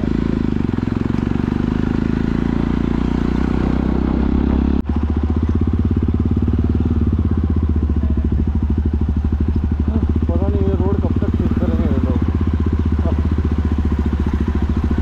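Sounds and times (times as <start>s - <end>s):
motorcycle engine running loud: 0.0s - 15.0s.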